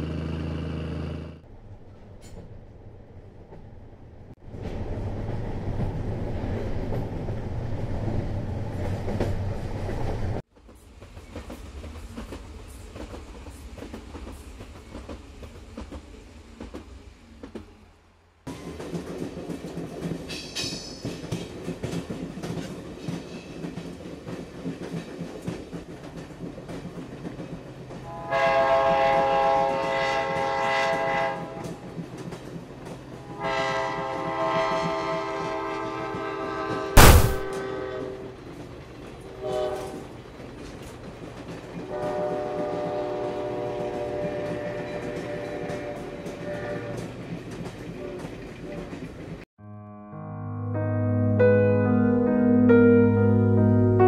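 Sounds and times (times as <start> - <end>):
train rumbling and clattering: 1.4 - 49.5
train horn blasts: 28.0 - 31.8, 33.2 - 38.4, 39.3 - 40.0, 41.8 - 47.1
loud sharp knock: 37.0 - 37.6.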